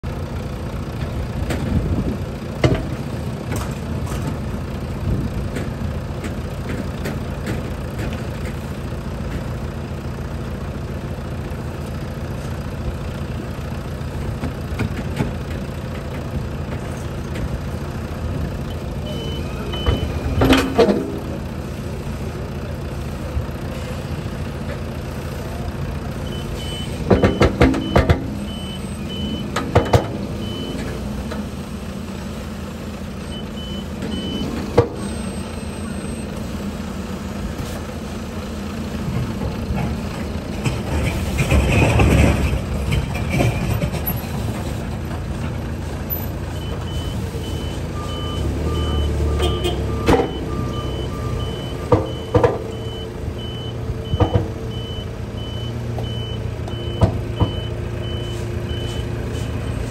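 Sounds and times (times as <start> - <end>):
diesel truck engine running: 0.0 - 59.9
reversing beeps: 19.0 - 20.6, 26.3 - 30.8, 33.3 - 36.4, 46.5 - 59.6.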